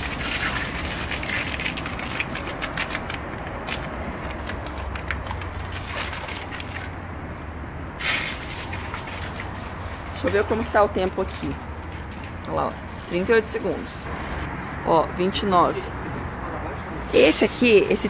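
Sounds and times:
water spray crackling spatter: 0.0 - 7.0, 8.0 - 13.6.

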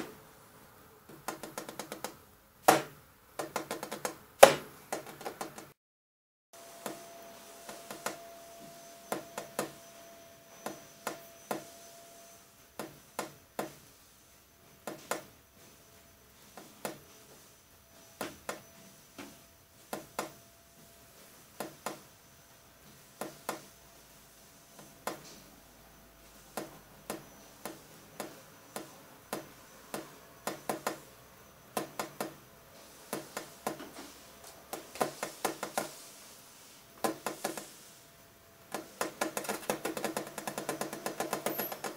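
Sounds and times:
sharp clicks and taps: 1.1 - 5.8, 38.7 - 41.9
faint steady hum: 6.6 - 41.9.

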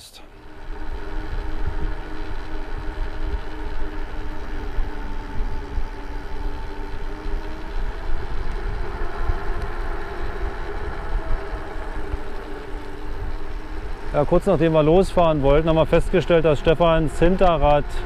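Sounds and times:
droning hum: 0.0 - 18.0.

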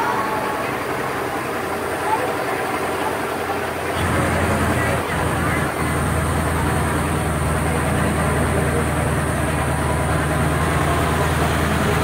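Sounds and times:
truck engine low drone: 0.0 - 12.0.

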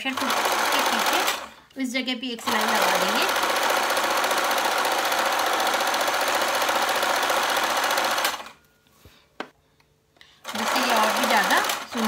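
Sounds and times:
sewing machine stitching: 0.0 - 1.5, 2.4 - 8.6, 10.4 - 12.0.

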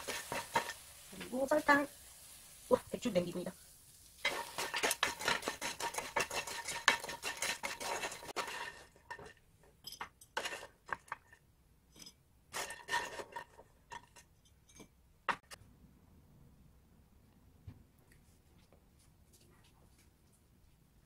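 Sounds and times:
spatula scraping frying pan: 0.0 - 1.4, 4.2 - 9.4, 10.0 - 11.4, 12.5 - 14.3.

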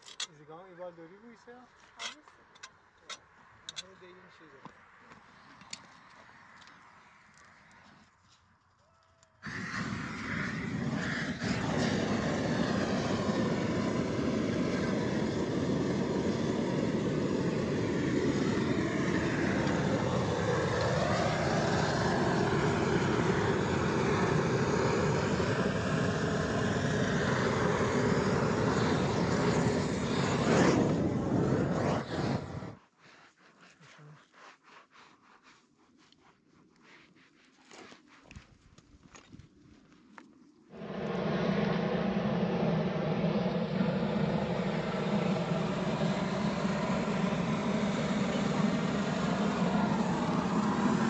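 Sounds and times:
gas blowtorch burning: 9.4 - 32.8, 40.7 - 51.0.

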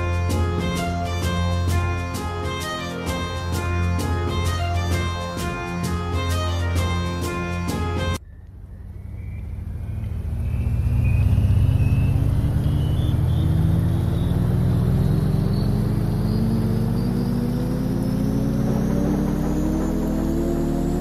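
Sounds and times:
background music: 0.0 - 8.2
engine hum rising in pitch: 0.0 - 21.0.

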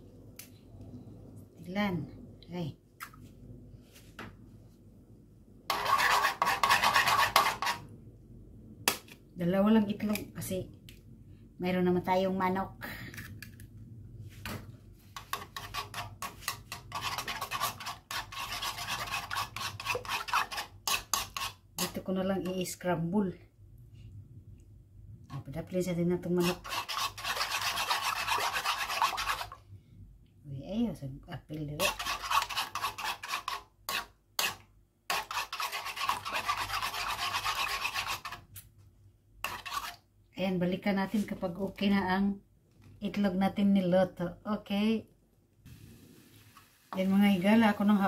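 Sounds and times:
metal spoon scraping a wok: 5.7 - 7.8, 15.2 - 21.6, 26.4 - 29.6, 31.8 - 38.4, 39.4 - 40.0.

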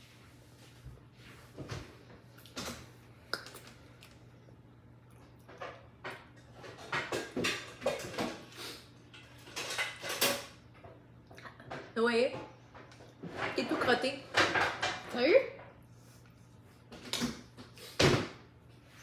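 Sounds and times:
utensils clinking on metal bowl: 9.1 - 10.6.

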